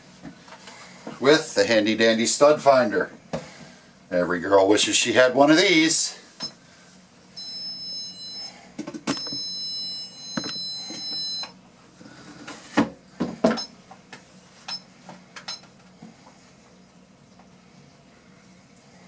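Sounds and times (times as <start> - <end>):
stud finder beeping: 7.4 - 11.6.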